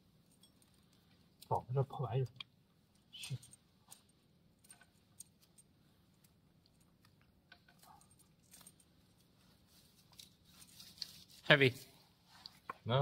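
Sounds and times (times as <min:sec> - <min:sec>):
small clicks of metal parts: 0:00.2 - 0:01.6, 0:02.2 - 0:09.3.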